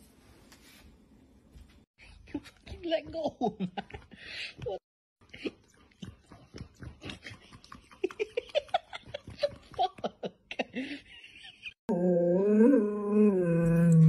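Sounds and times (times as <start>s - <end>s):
person laughing: 7.0s - 11.8s.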